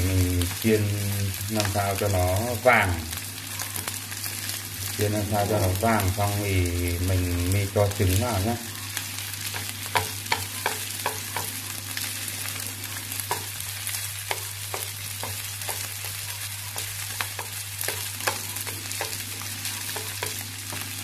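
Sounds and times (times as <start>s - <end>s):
rice sizzling in hot oil: 0.0s - 21.0s
chopsticks tapping a pan: 9.5s - 11.6s, 13.2s - 13.6s, 14.2s - 21.0s.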